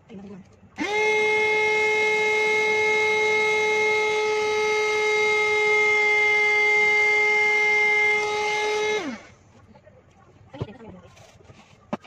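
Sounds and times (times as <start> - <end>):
handheld vacuum cleaner whine: 0.8 - 9.4.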